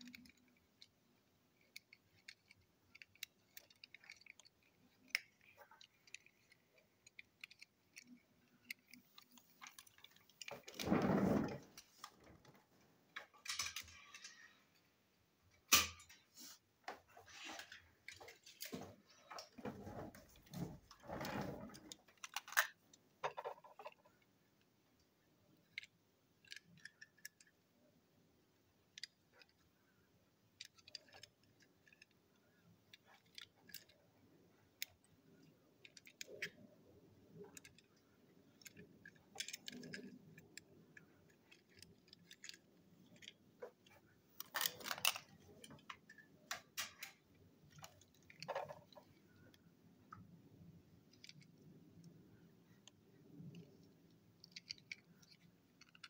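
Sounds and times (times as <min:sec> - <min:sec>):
toy cars clicking and tapping: 0:00.0 - 0:10.9, 0:13.3 - 0:14.5, 0:21.7 - 0:27.7, 0:28.6 - 0:29.8, 0:30.4 - 0:50.2, 0:51.0 - 0:56.0.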